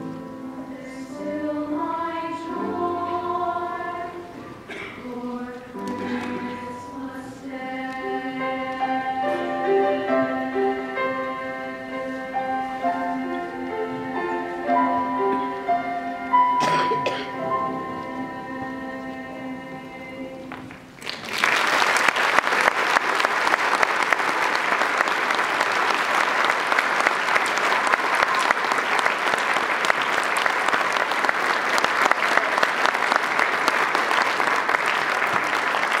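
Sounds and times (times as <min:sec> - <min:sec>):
treble choir holding a chord: 0:00.0 - 0:20.7
audience applause: 0:20.6 - 0:36.0.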